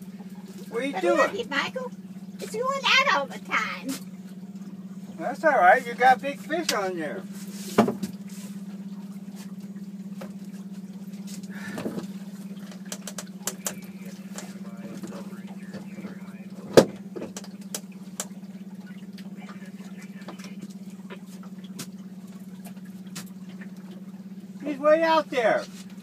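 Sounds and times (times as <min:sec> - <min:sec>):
outboard motor humming: 0:00.0 - 0:26.0
clicks and knocks on boat: 0:07.7 - 0:08.3, 0:09.4 - 0:24.4.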